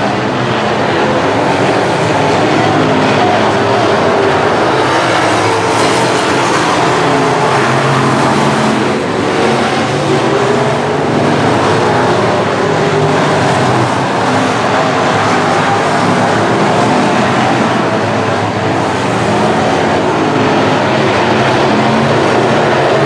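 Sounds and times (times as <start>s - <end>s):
race car engines racing: 0.0s - 23.0s.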